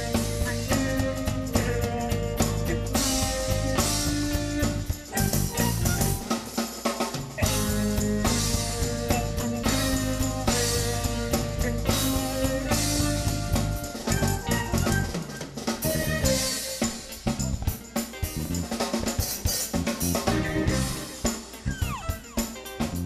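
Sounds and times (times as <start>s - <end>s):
heavy bass: 0.0s - 6.3s, 7.4s - 18.8s, 19.4s - 22.2s, 22.8s - 23.0s
drum kit: 0.0s - 23.0s
live band music: 0.0s - 23.0s
tambourine: 0.0s - 23.0s
electric violin: 7.4s - 18.6s, 19.9s - 23.0s.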